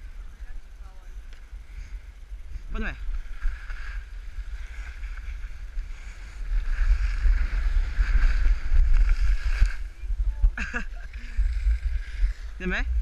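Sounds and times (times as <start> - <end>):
wind buffeting microphone: 0.0 - 13.0
skis hissing over snow: 3.2 - 10.0.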